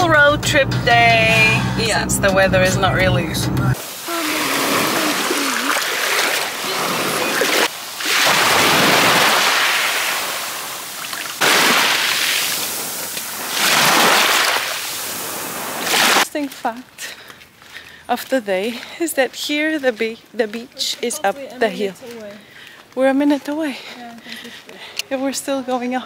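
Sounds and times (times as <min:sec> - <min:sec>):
waves washing over shingle: 0:03.8 - 0:16.3.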